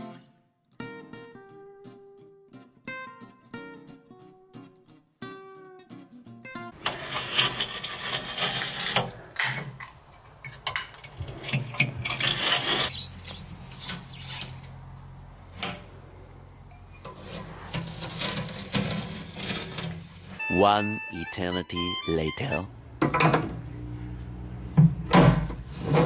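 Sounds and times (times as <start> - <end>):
knife scraping silicone sealant: 12.2 - 14.5.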